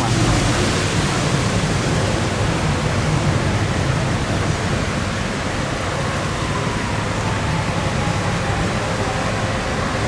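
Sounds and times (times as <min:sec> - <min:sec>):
low rumble of diesel engines: 0:00.0 - 0:10.0
water rushing at a sluice gate: 0:00.0 - 0:10.0.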